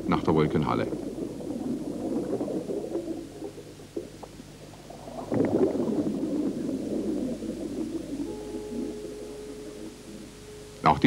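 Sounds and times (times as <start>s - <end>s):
air bubbles gurgling underwater: 0.0s - 10.3s.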